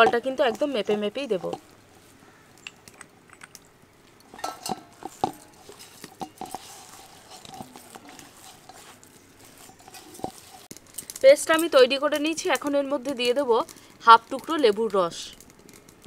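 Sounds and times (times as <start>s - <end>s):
paste stirred in a bowl: 4.9s - 10.8s.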